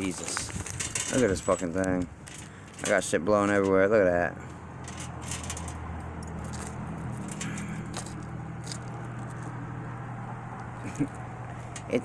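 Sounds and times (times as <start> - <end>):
metal chain clinking: 0.2 - 3.8, 4.8 - 9.6.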